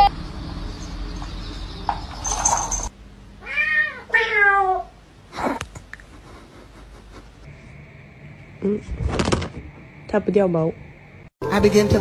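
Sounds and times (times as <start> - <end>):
cat meowing: 3.4 - 5.0.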